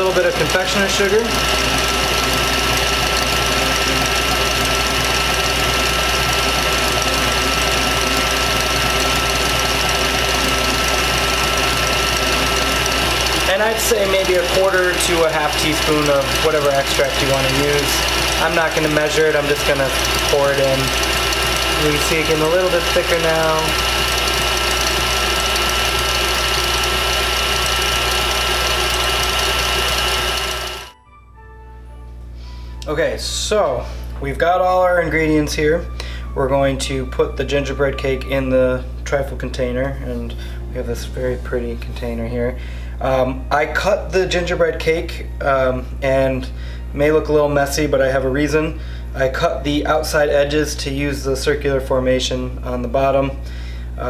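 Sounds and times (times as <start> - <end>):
whisk whirring in cream: 0.0 - 30.9
stand mixer whining: 0.0 - 31.0.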